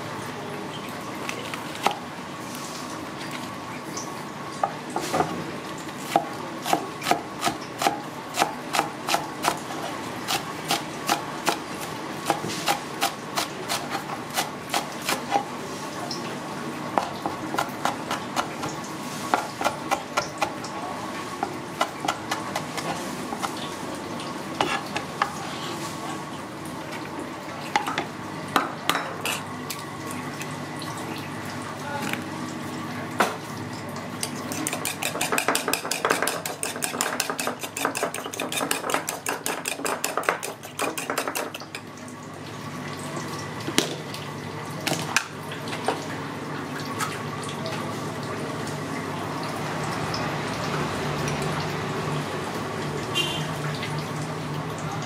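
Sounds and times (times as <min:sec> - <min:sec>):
utensil beating eggs in bowl: 0:34.5 - 0:41.6.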